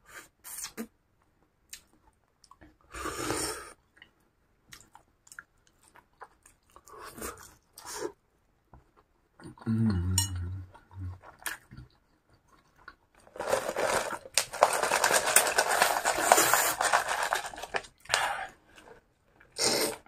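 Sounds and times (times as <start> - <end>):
ice rattling in plastic cup: 13.2 - 17.9.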